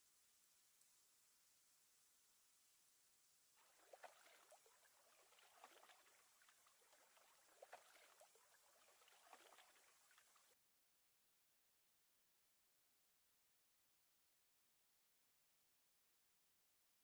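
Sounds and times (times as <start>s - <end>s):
faint steady hiss: 0.0s - 10.6s.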